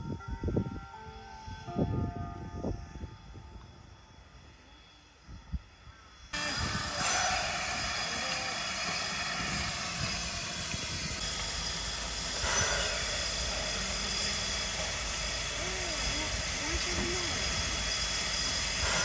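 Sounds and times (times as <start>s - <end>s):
steam locomotive hissing: 6.4s - 19.0s.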